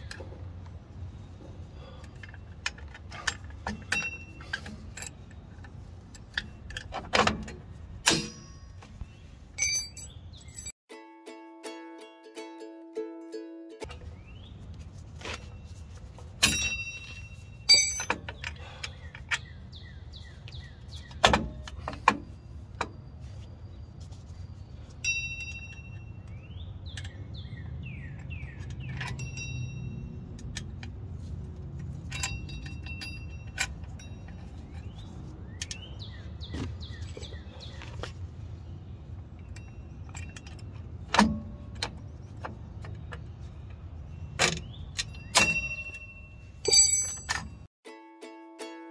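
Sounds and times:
metal springs clinking and jangling: 1.8s - 8.8s, 9.6s - 10.8s, 16.2s - 19.5s, 28.1s - 35.0s, 39.3s - 42.4s, 44.3s - 47.7s.

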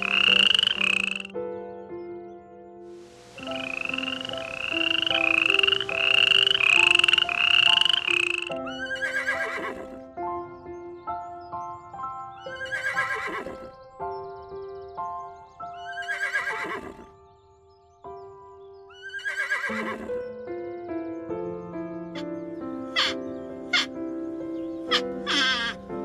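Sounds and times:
chorus of rapid animal calls: 0.0s - 1.3s, 3.4s - 10.0s, 12.4s - 13.7s, 15.8s - 17.1s, 22.9s - 24.0s, 24.9s - 25.9s
long quavering falling calls: 0.0s - 1.3s, 3.0s - 10.0s, 12.4s - 13.7s, 15.8s - 17.1s, 18.9s - 20.2s, 23.0s - 24.0s, 24.8s - 25.9s
background music of held notes: 0.0s - 26.0s.

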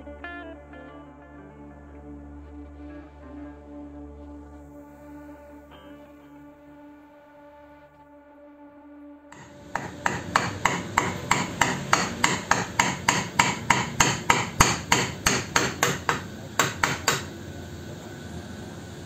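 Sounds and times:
hammer tapping on wood: 9.4s - 17.3s.

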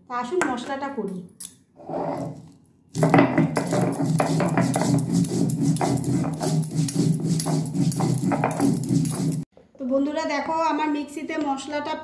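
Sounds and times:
grinding stone scraping: 1.8s - 9.5s
glass bangles clicking: 3.0s - 9.5s.

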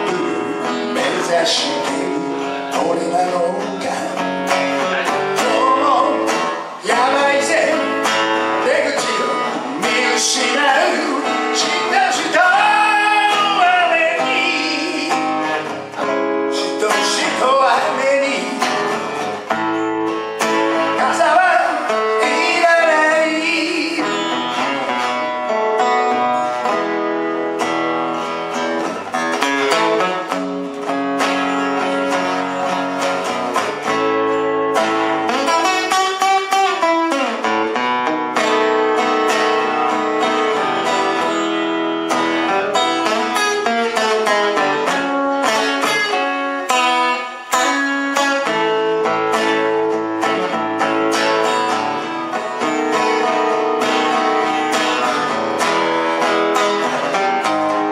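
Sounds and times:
man singing: 0.0s - 19.5s, 20.4s - 26.8s, 35.2s - 37.5s
acoustic guitar strumming: 0.0s - 57.9s.

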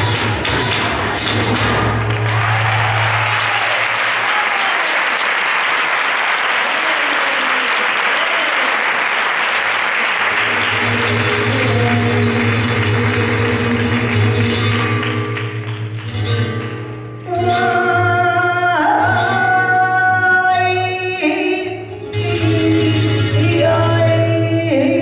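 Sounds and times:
flamenco music: 0.0s - 25.0s
audience applause: 0.3s - 16.6s.

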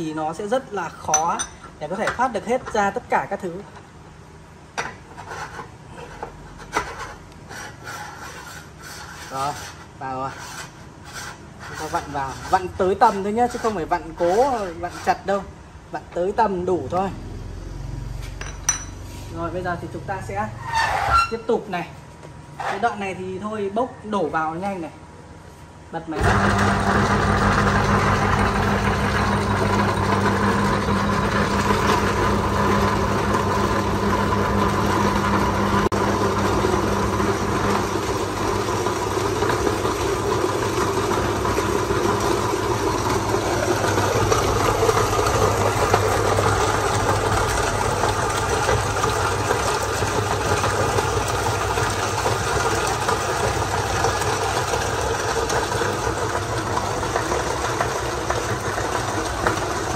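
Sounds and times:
electric motor hum: 26.2s - 49.5s
meat grinder crunching bones: 26.2s - 59.9s.

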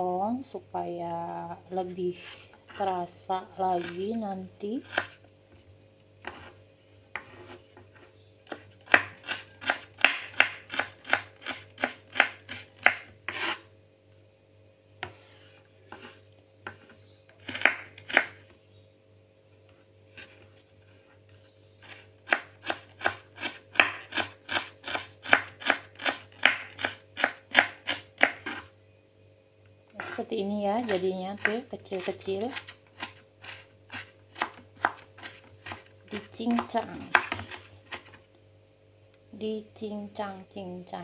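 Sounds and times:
knife chopping on wooden board: 4.8s - 5.2s, 6.2s - 13.6s, 15.9s - 18.4s, 21.9s - 28.7s, 30.0s - 38.2s.

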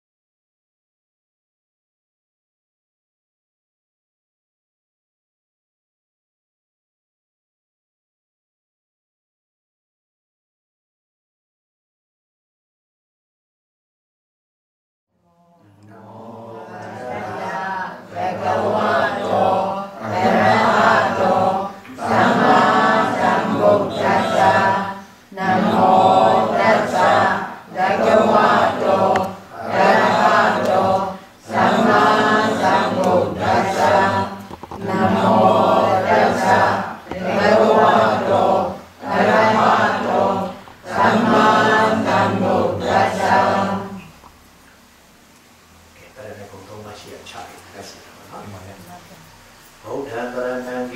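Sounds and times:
chanting into microphone: 15.2s - 44.2s.

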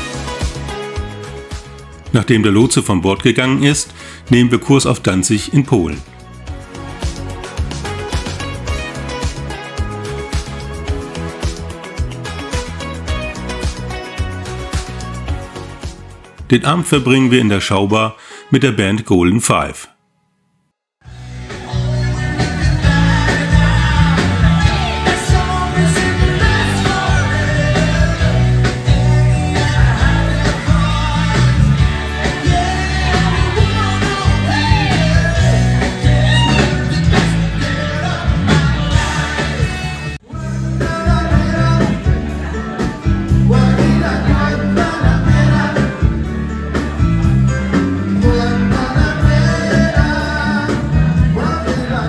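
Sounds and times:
drums: 0.0s - 2.8s, 3.7s - 17.1s, 21.1s - 52.0s
bass guitar: 0.0s - 17.2s, 21.0s - 52.0s
electric guitar: 21.1s - 52.0s
man singing: 21.5s - 46.3s, 48.0s - 52.0s.

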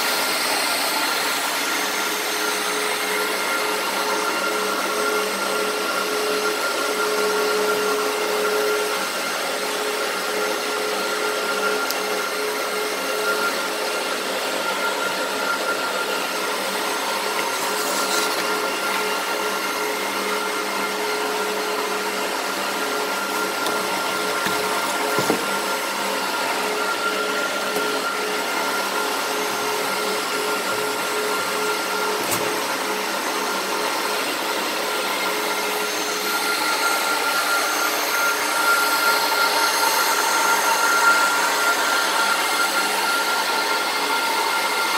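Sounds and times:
cooling fans whirring: 21.4s - 33.3s
cardboard flaps knocking: 24.4s - 25.6s.

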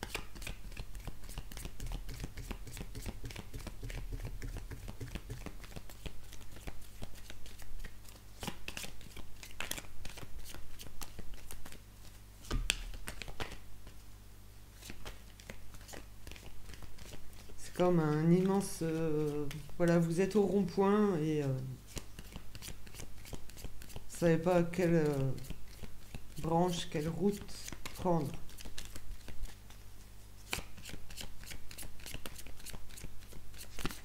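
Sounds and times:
cards being shuffled: 0.0s - 14.0s, 14.8s - 20.6s, 21.9s - 34.0s
card tap against table: 12.5s - 13.6s.

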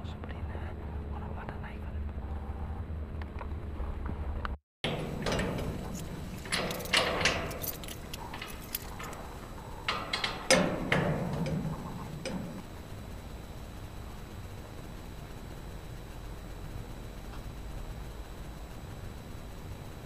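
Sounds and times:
sharp clicks and clatters: 4.8s - 12.7s
rustling and clinking handling: 4.9s - 12.7s.

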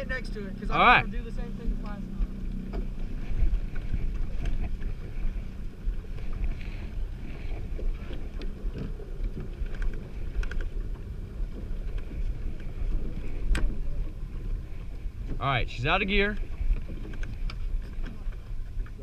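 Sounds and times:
boat motor running: 0.0s - 19.0s
wind rumbling on microphone: 0.0s - 19.0s
light knocks on boat: 1.6s - 4.9s.

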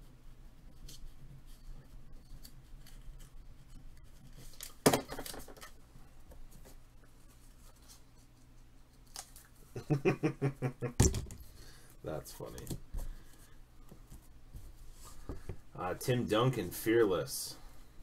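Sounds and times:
man laughing: 9.8s - 11.0s.

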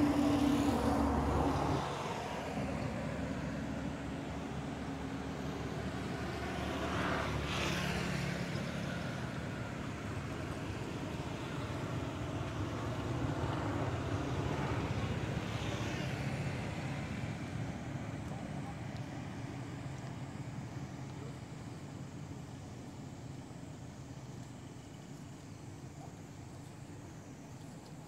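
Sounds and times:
road traffic rumble: 0.0s - 28.0s.

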